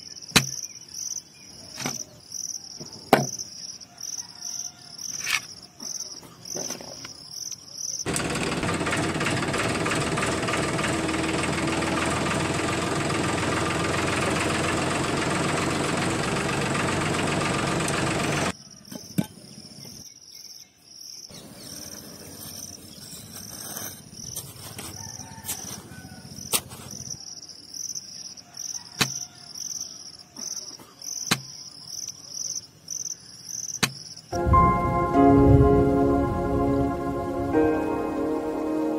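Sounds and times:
crickets chirping: 0.0 - 8.1, 18.5 - 34.4
toy truck electric motor running: 8.1 - 18.6.

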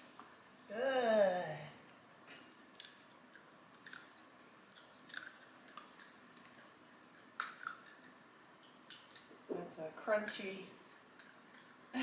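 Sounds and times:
puppy crunching dog treat: 2.7 - 9.4, 10.8 - 11.9.

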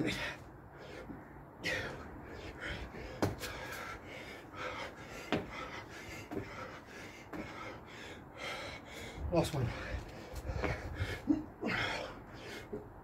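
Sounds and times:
man panting: 0.0 - 13.0
thuds landing on paving slabs: 3.0 - 3.8, 5.2 - 5.7, 6.3 - 6.7.

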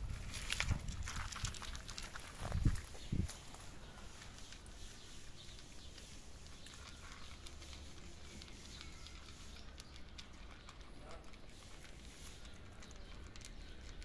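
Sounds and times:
cats crunching dry kibble: 0.0 - 14.0
low steady background noise: 0.0 - 14.0.

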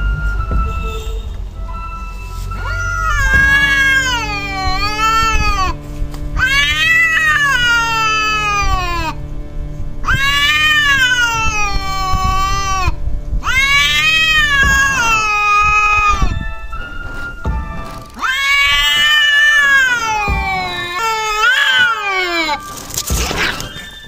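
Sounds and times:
cats yowling: 2.5 - 5.8, 6.4 - 9.2, 10.0 - 16.7, 18.1 - 24.0.

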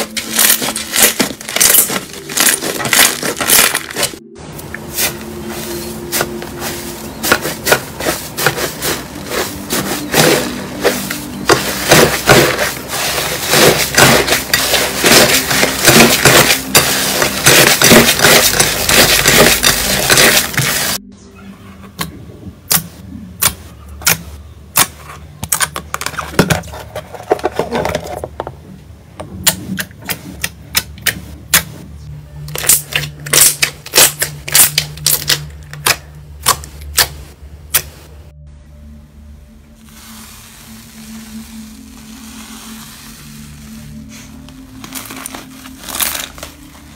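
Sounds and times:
slime crackling and squishing: 0.0 - 4.2, 6.1 - 21.0, 39.9 - 46.9.

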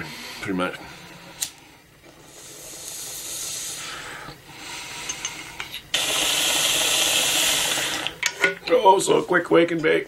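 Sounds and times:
air hissing through bong: 2.2 - 8.2.

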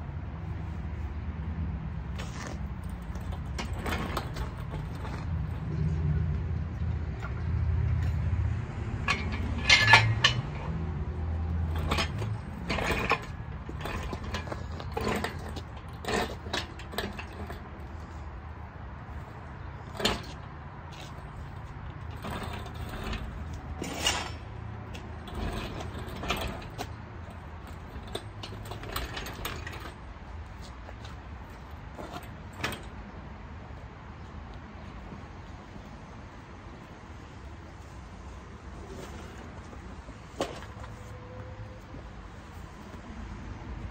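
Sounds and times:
metal clanks and clicks: 2.2 - 6.4, 7.2 - 18.2, 19.2 - 33.0, 40.3 - 41.5.

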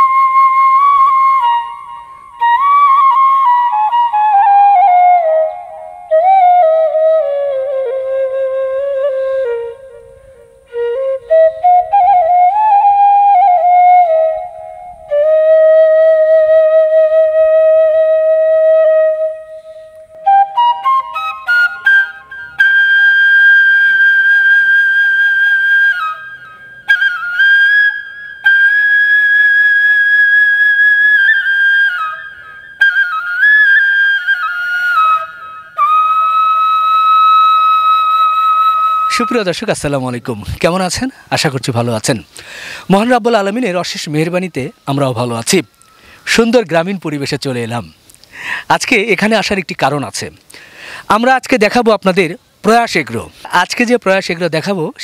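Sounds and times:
solo flute melody: 0.0 - 41.0.

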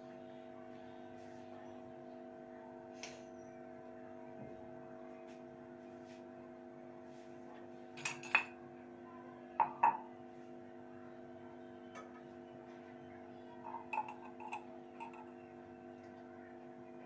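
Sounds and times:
mugs clinking: 8.0 - 8.5, 9.6 - 10.1, 13.7 - 15.4
mugs knocking on counter: 9.6 - 10.0.

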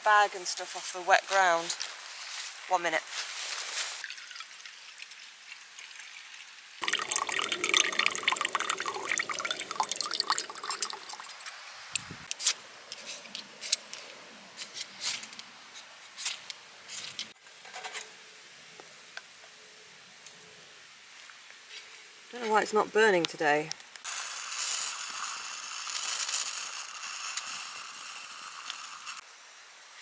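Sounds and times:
liquid fuel pouring and splashing: 4.0 - 11.5.

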